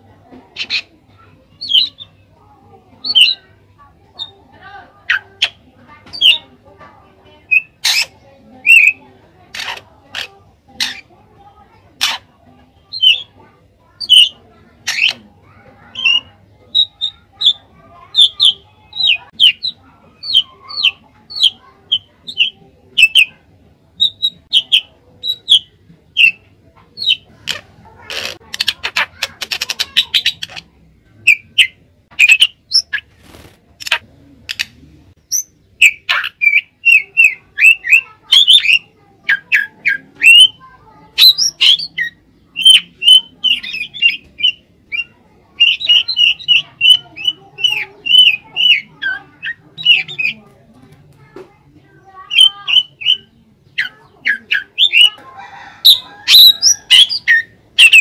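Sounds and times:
bird whistling and chattering: 0:00.5 - 0:02.2, 0:02.9 - 0:06.5, 0:07.3 - 0:11.1, 0:11.9 - 0:13.4, 0:14.0 - 0:33.2, 0:33.8 - 0:50.5, 0:52.2 - 0:55.2, 0:55.8 - 0:58.0
harsh bird rattle: 0:07.4 - 0:11.1, 0:14.0 - 0:15.2, 0:27.1 - 0:30.7.

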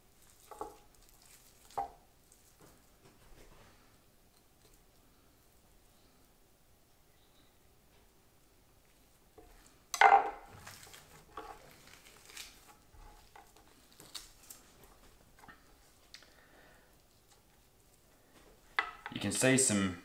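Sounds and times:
taps and rustles of meat handling: 0:00.2 - 0:03.7.

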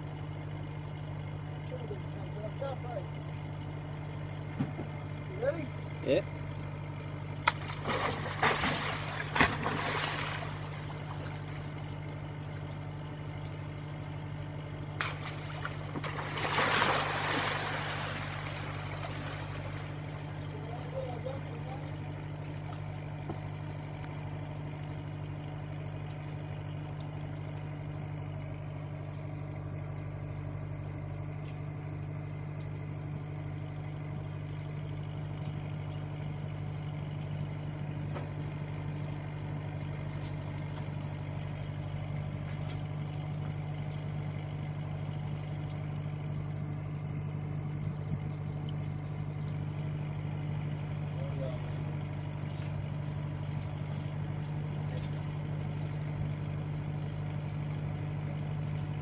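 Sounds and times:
boat engine idling: 0:00.0 - 0:59.0
water splashing: 0:07.5 - 0:12.8, 0:15.0 - 0:23.1.

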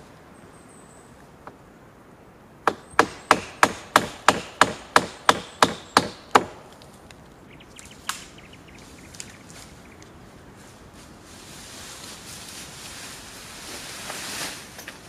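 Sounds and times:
hammer driving nail into wood: 0:02.7 - 0:06.6.

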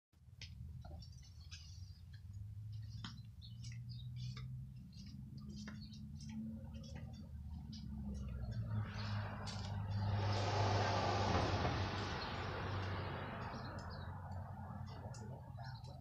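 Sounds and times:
vehicle noise: 0:00.2 - 0:16.0.

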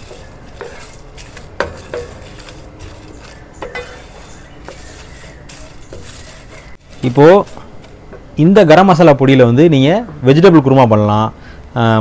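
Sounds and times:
spices roasting in a pan: 0:00.0 - 0:08.0
utensil scraping a pan: 0:00.0 - 0:08.0.

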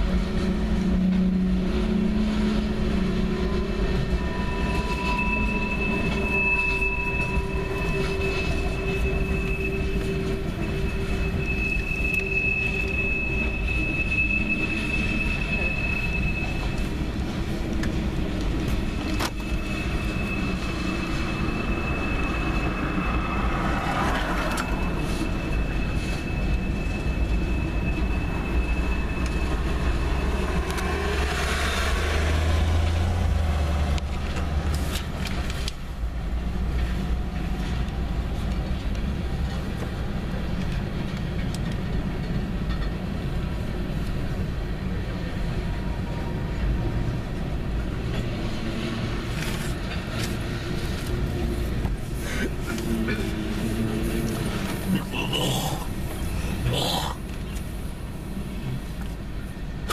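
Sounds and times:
freight train wheels rumbling: 0:00.0 - 0:59.9
wheel squeal: 0:00.5 - 0:33.8
truck passing: 0:20.3 - 0:40.1.

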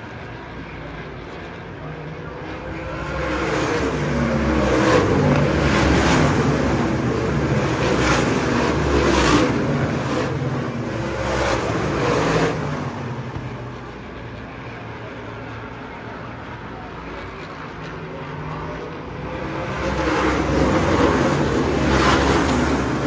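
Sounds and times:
race car engines passing: 0:00.0 - 0:23.0.

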